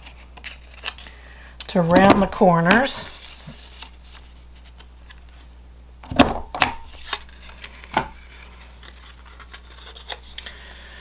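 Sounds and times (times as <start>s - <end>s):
paper handling: 0.0s - 1.1s, 1.7s - 5.5s, 6.9s - 10.6s.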